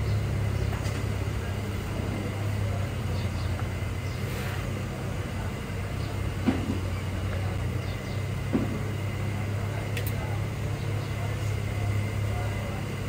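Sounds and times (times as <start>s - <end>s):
street traffic drone: 0.0s - 13.0s.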